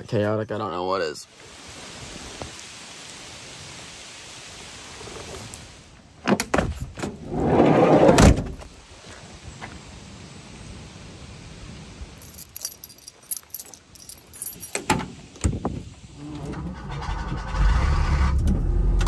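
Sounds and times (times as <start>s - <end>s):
keys jingling: 12.2s - 15.0s.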